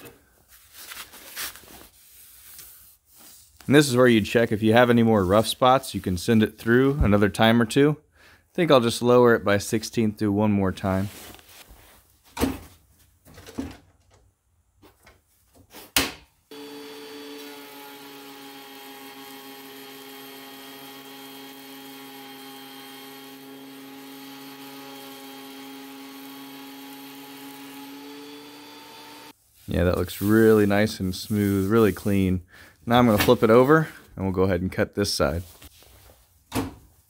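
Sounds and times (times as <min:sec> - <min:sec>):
thickness planer humming: 0:16.5 - 0:29.3.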